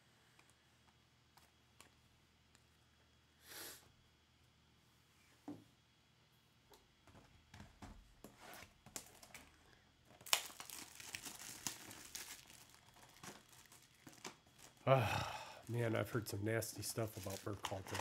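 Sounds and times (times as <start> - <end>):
plastic wrap crinkling: 8.9 - 14.9, 15.6 - 18.0
plastic wrap tearing: 10.1 - 14.9, 16.7 - 18.0.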